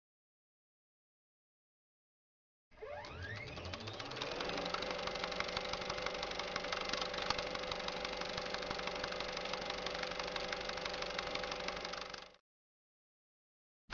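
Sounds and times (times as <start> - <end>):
film projector whirring and clicking: 2.8 - 12.4.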